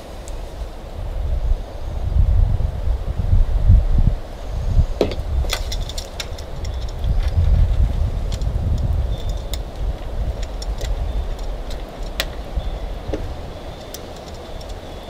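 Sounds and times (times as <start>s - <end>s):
metal roller clicking and rattling: 8.2s - 15.0s.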